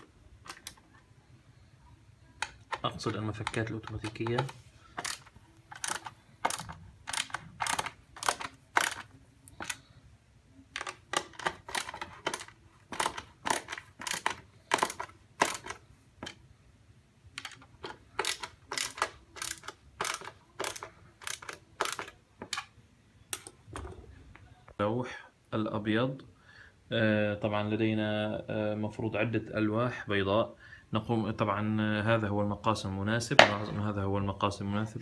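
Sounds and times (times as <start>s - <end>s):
screwdriver clicking: 3.4s - 9.8s, 10.8s - 15.8s, 17.4s - 22.7s.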